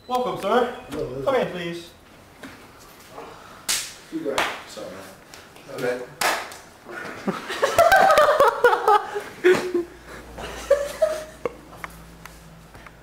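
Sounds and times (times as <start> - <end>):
people laughing: 6.9 - 11.7.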